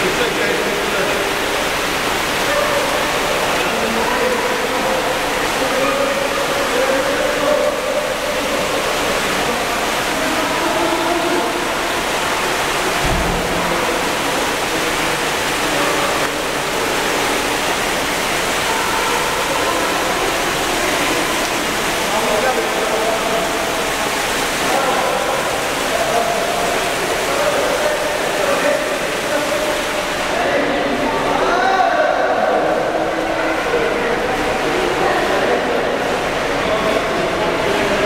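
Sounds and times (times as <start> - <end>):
faint voices: 0.0 - 38.0
rush of pool water: 0.0 - 38.0
low thump: 13.0 - 13.8.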